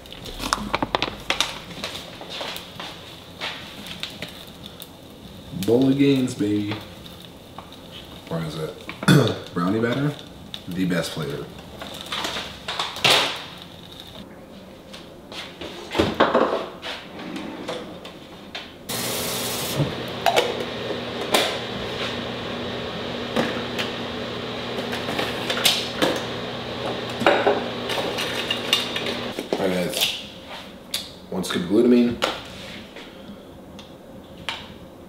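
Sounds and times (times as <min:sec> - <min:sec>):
steady hiss with low hum: 0:00.0 - 0:15.9, 0:28.6 - 0:35.0.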